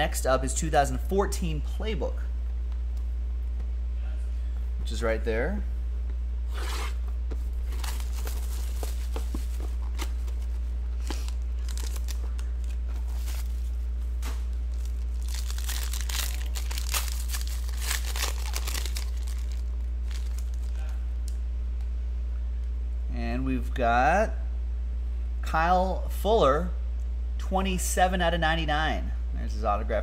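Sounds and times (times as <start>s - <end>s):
low electrical hum: 0.0s - 30.0s
foil pack crinkling: 7.6s - 20.9s
plastic shrink-wrap tearing: 11.1s - 13.4s, 14.7s - 20.9s.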